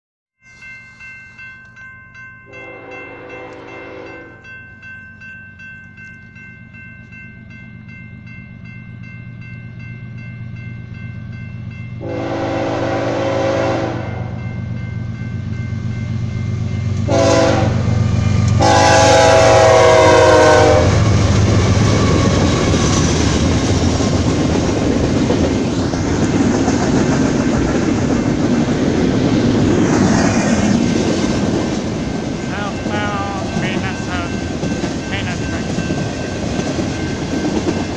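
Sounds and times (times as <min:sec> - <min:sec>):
crossing bell ringing: 0:00.4 - 0:25.7, 0:27.1 - 0:37.9
train horn blasts: 0:02.5 - 0:04.4, 0:12.0 - 0:14.4, 0:17.0 - 0:18.0, 0:18.6 - 0:21.1
train wheels rolling on rails: 0:14.6 - 0:37.9.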